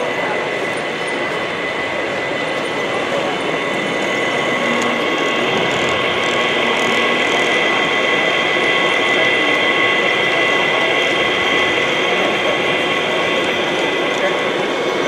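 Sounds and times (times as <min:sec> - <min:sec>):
high whine: 0:00.0 - 0:15.0
model locomotive running: 0:00.0 - 0:15.0.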